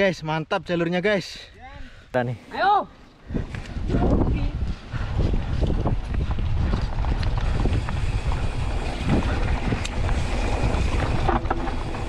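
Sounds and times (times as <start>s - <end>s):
wind buffeting microphone: 3.2s - 12.0s
bike rattling over bumps: 3.4s - 12.0s.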